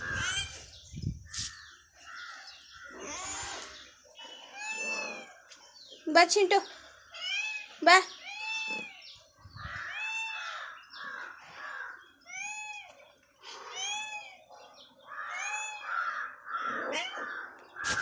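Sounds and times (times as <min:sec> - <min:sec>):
animal calling: 0:01.3 - 0:05.6.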